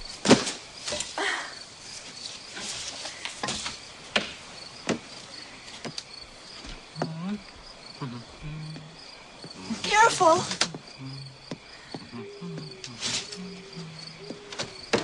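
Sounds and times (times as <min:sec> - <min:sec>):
crickets chirping: 0:00.0 - 0:15.0
sharp knocks and scrapes: 0:02.0 - 0:06.0.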